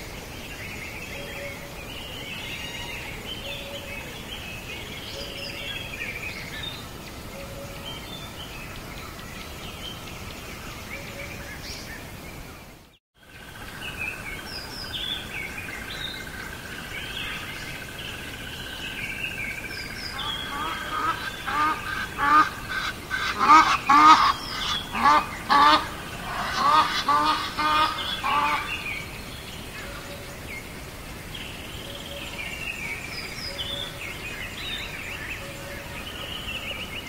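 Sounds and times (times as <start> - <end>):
background hiss: 0.0 - 37.0
birds chirping and singing: 13.6 - 37.0.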